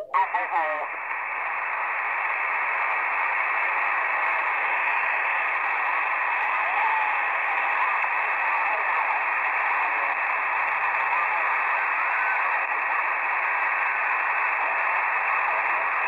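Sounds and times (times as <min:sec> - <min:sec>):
shortwave radio static hiss: 0:00.0 - 0:16.0.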